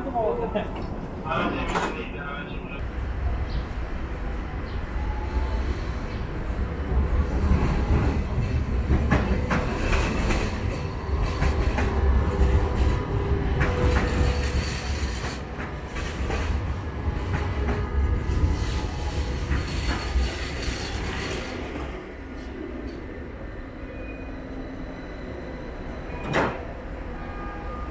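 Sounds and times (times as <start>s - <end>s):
tram wheels rumbling on rail: 0.0s - 27.9s
clacks over the track: 7.5s - 21.4s.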